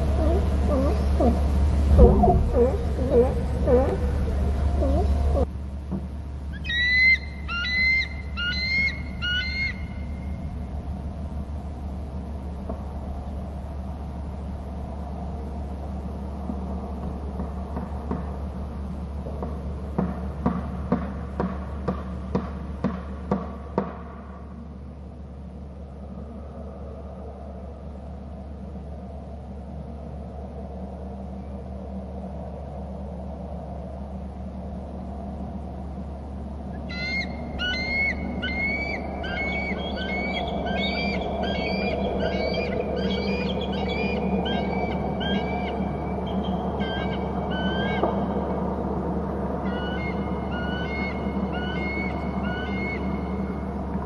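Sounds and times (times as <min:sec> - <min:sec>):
eagle screeching: 0:00.0 - 0:05.5, 0:06.5 - 0:10.2, 0:36.8 - 0:48.1, 0:49.6 - 0:53.3
steady low hum: 0:00.0 - 0:54.0.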